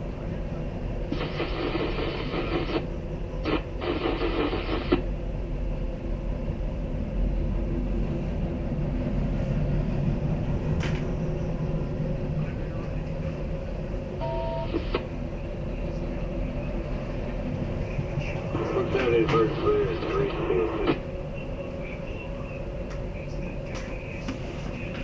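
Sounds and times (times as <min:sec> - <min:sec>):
steady low rumble: 0:00.0 - 0:25.0
radio static hiss: 0:01.1 - 0:05.1, 0:14.2 - 0:25.0
radio beep tones: 0:14.2 - 0:15.1, 0:17.8 - 0:22.6.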